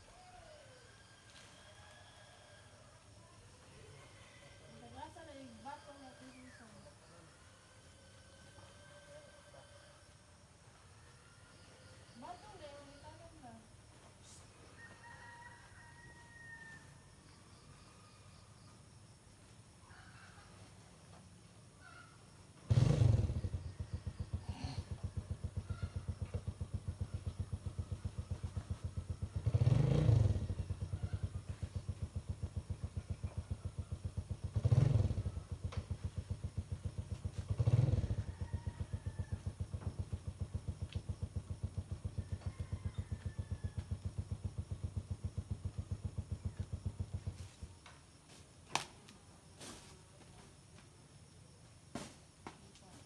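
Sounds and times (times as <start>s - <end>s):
small engine idling and revving: 22.5s - 48.1s.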